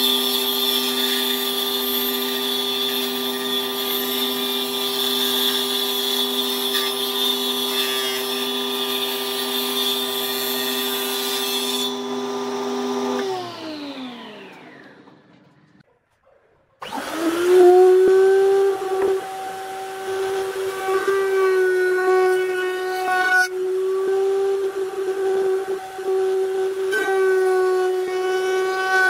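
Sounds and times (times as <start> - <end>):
router whining: 0.0 - 15.8, 16.8 - 29.0
electric motor humming and winding down: 12.0 - 15.8, 16.8 - 28.9.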